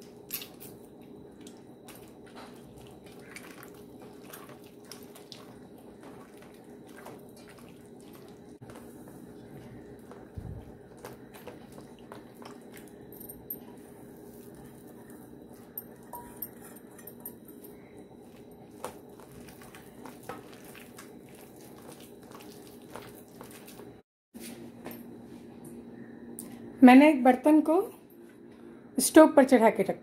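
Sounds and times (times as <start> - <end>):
steady low hum: 0.0 - 30.0
hands squelching food: 1.4 - 13.0, 13.7 - 24.0.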